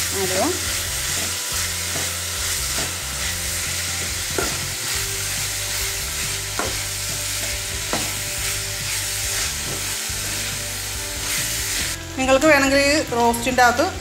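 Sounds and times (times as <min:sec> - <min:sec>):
vegetables sizzling in hot oil: 0:00.0 - 0:14.0
steel spoon knocking on pan: 0:04.3 - 0:04.7, 0:06.5 - 0:06.9.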